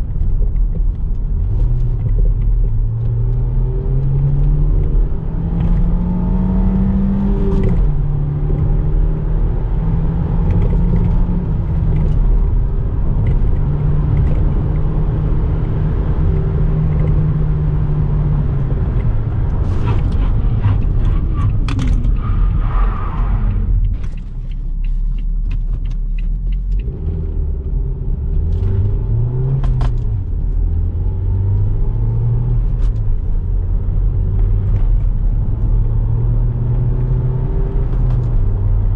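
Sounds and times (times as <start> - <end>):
road rumble: 0.0 - 38.9
car engine running: 4.2 - 35.9.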